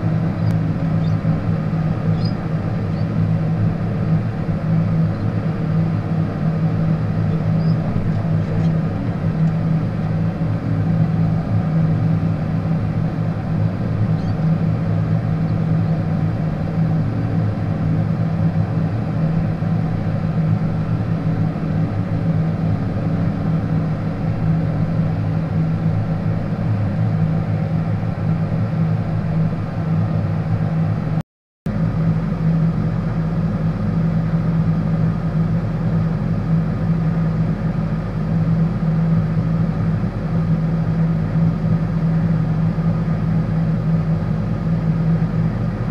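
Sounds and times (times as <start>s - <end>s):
tractor diesel engine running: 0.0s - 45.9s.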